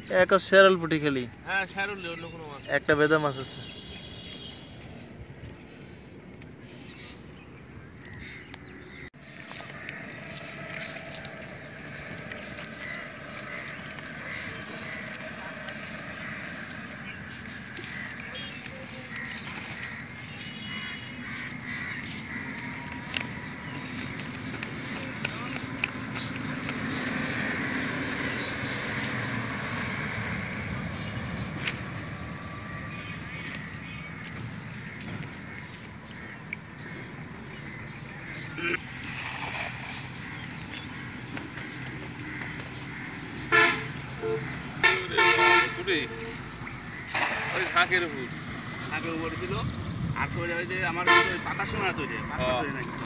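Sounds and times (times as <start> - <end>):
net rustling and clicking: 8.9 - 26.9, 31.5 - 36.6, 46.1 - 47.8.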